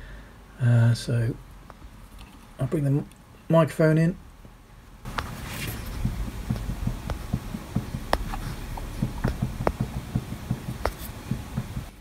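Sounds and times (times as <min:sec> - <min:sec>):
spindle knocking and clicking: 0:05.1 - 0:12.0.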